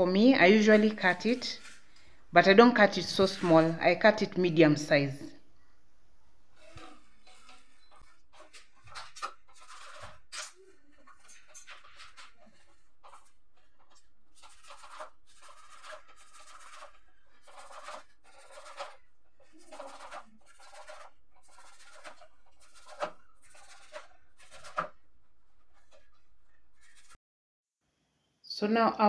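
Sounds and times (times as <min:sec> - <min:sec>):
knife cutting leafy greens: 0:00.4 - 0:02.0, 0:06.6 - 0:25.0.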